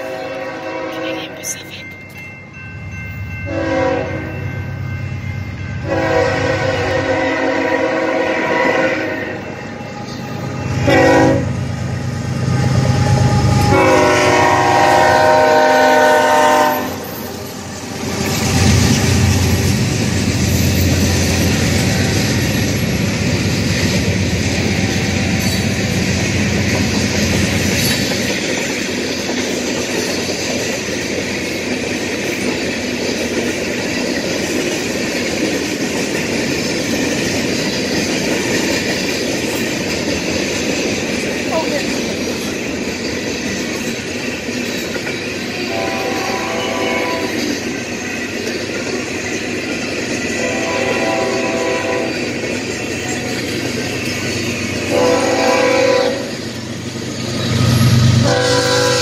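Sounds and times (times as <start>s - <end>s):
train air horn: 0.0s - 1.3s, 3.5s - 4.3s, 5.8s - 9.4s, 10.7s - 11.6s, 12.8s - 17.1s, 45.6s - 47.5s, 50.4s - 52.3s, 54.9s - 56.3s, 58.2s - 59.0s
freight cars clattering on rails: 17.0s - 50.5s.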